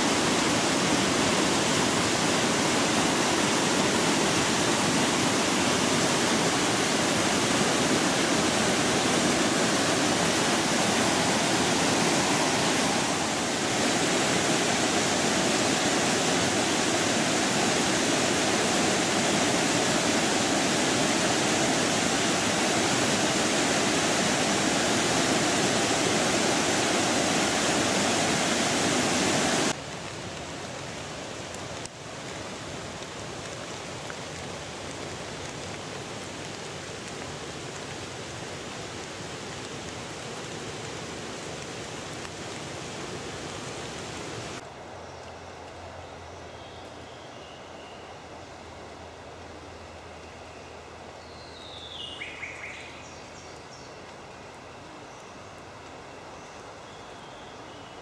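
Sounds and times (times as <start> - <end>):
waterfall roaring: 0.0 - 31.6, 32.2 - 44.6
quiet steady hiss: 0.0 - 58.0.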